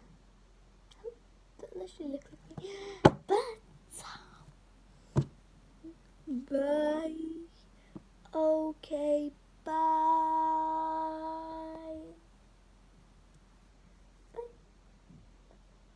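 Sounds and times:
girl singing wordless notes: 1.0 - 4.4, 5.8 - 12.3.

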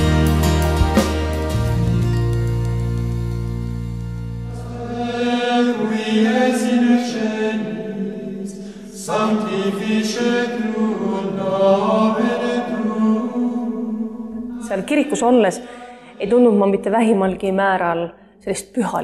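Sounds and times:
voices singing sacred chant: 4.5 - 15.3.

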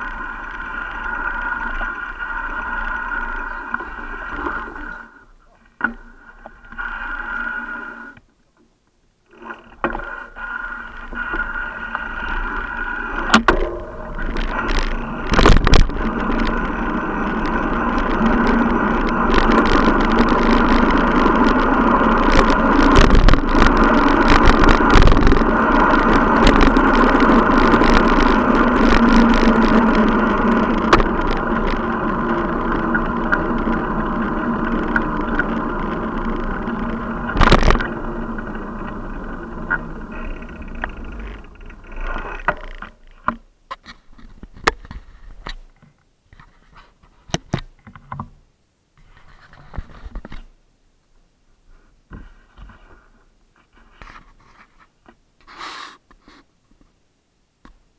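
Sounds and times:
bicycle tyres rumbling and rattling: 0.0 - 8.2, 9.2 - 45.8
bicycle knocking over bumps: 13.2 - 43.5.

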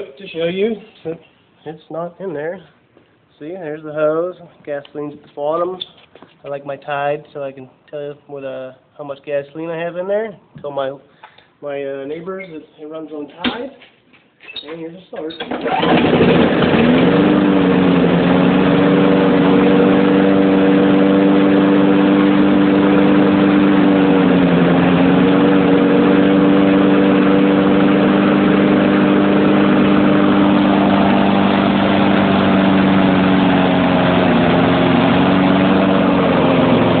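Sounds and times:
lawnmower engine running: 15.5 - 37.0.

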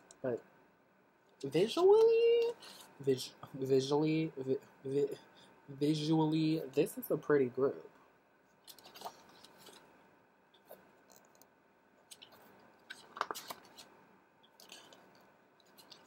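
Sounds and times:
album pages flipping: 8.6 - 9.9, 10.6 - 16.0.

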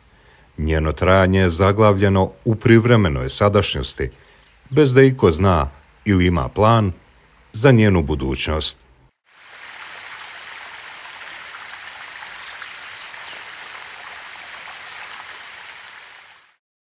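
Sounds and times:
stream rushing: 9.3 - 16.6.

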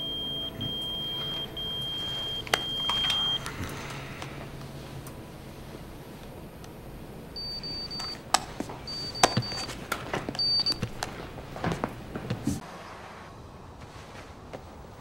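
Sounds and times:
high electronic beeps: 0.0 - 3.6, 7.4 - 8.2.

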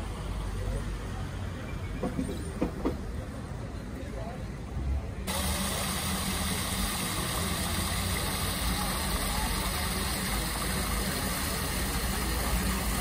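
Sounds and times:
fountain splashing into basin: 5.3 - 13.0.

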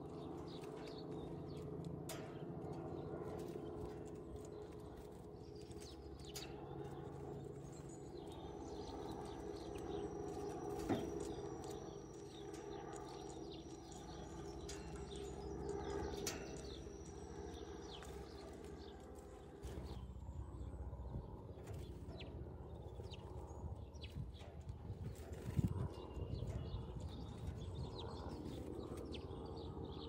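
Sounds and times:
steady low hum: 0.0 - 30.0
beaks tapping on metal feeder: 8.8 - 19.0.

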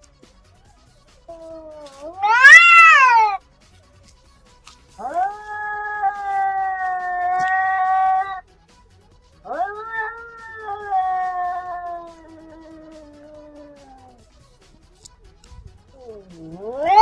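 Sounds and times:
cats yowling: 1.3 - 3.4, 5.0 - 8.4, 9.4 - 14.2, 16.0 - 17.0.

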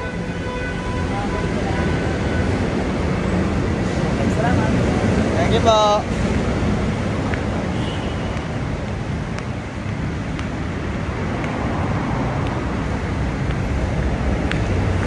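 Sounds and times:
highway traffic noise: 0.0 - 15.0.

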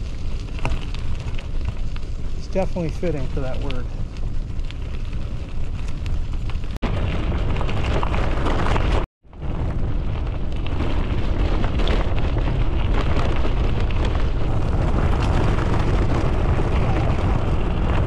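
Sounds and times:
bike tyres rolling over gravel: 0.0 - 18.0
wind buffeting microphone: 0.0 - 18.0.

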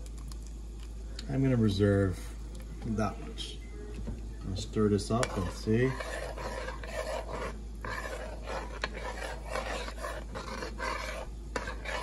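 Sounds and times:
spoon stirring thick gravy: 4.6 - 12.0.

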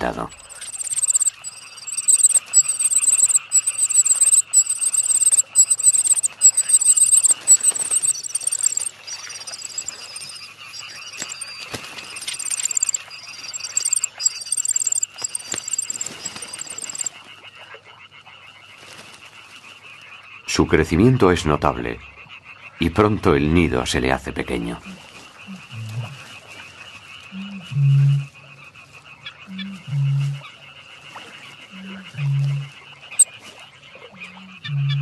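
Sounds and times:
bird chick trilled begging calls: 0.0 - 17.1.

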